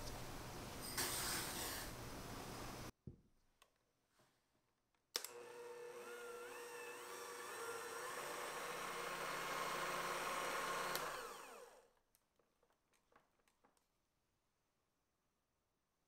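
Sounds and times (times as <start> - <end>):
electric hand mixer whirring: 5.2 - 11.9
electric hand mixer switch click: 10.6 - 11.5.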